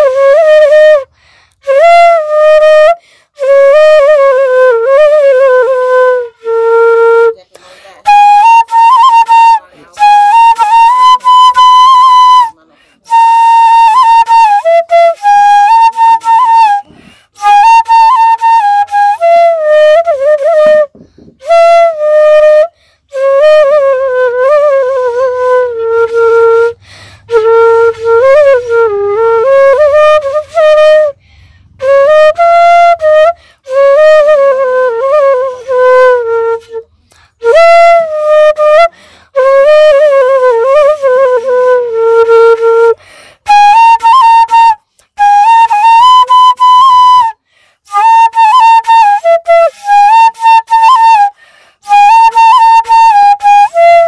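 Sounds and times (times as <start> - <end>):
flute-like wind instrument melody: 0.0 - 54.0.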